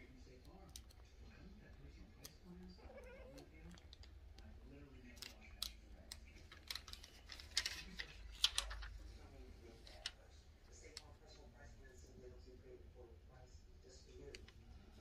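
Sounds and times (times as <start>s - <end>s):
kitten claws clicking on book: 2.1s - 9.0s.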